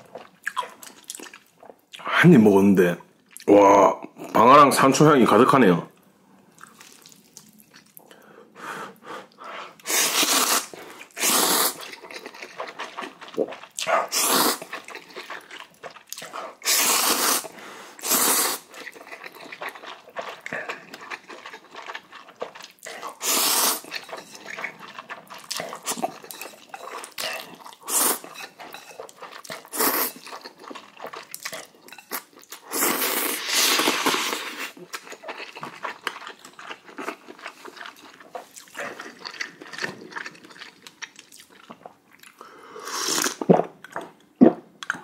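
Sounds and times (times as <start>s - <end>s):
chewing: 6.5s - 8.1s, 11.8s - 16.6s, 18.6s - 32.6s, 33.4s - 42.5s
man slurping noodles: 9.8s - 11.9s, 13.4s - 14.7s, 16.6s - 18.7s, 22.9s - 23.9s, 42.8s - 43.6s.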